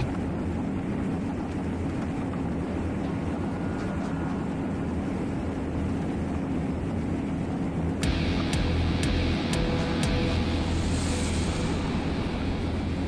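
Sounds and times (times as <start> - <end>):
hull and water rush: 0.0 - 8.1.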